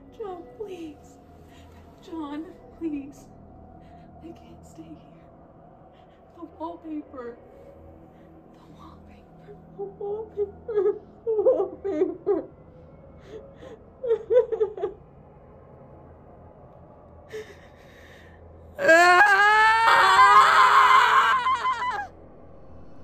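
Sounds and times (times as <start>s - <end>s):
woman whimpering: 9.8s - 12.5s, 13.3s - 15.0s
woman screaming: 18.8s - 22.1s.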